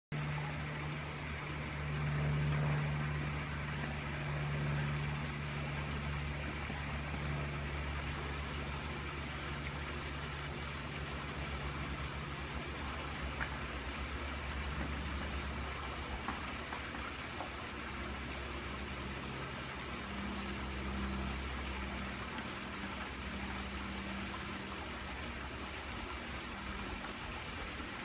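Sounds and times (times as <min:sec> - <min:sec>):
machine humming: 0:00.1 - 0:28.0.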